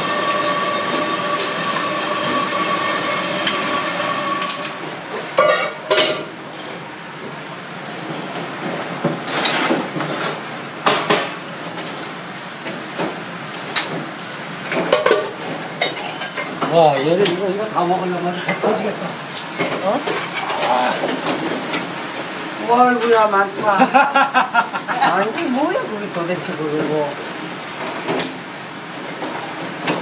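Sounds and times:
whirring hum with whining tones: 0.0 - 5.2
plates and utensils clattering: 5.2 - 6.3, 9.3 - 14.1, 14.7 - 17.4, 18.4 - 18.8, 19.5 - 22.0, 27.8 - 28.5.

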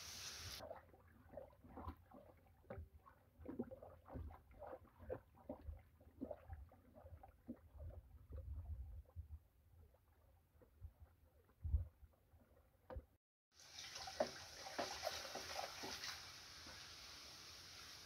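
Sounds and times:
wooden paddle stirring in metal pot: 0.6 - 8.4
slurry sloshing and squelching: 0.6 - 12.6.

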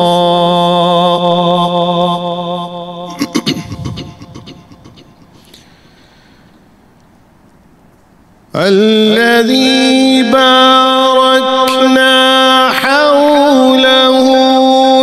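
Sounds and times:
man reciting in song: 0.0 - 5.1, 8.5 - 15.0.

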